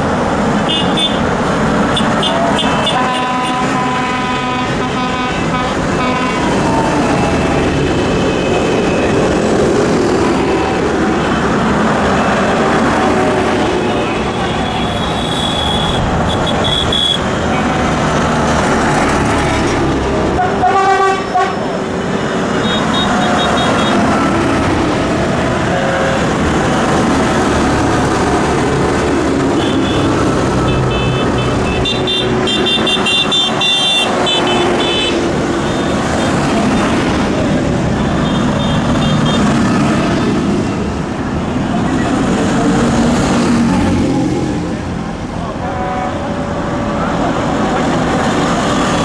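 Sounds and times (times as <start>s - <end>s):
tractor engines driving past: 0.0s - 49.0s
horn sounding: 1.9s - 6.9s, 19.5s - 21.8s, 25.5s - 26.7s.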